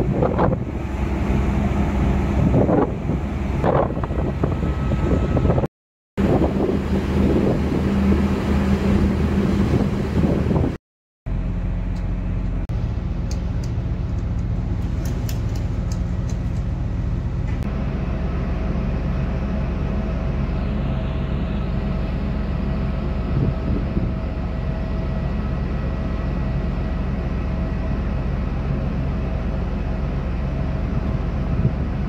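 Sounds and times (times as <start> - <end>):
machinery whine: 0.0 - 32.0
ship engine low hum: 0.0 - 32.0.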